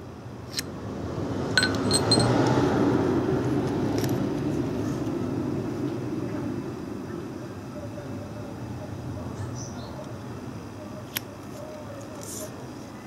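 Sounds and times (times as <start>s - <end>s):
low rumbling background noise: 0.0s - 13.0s
light metal clinks: 1.6s - 2.4s.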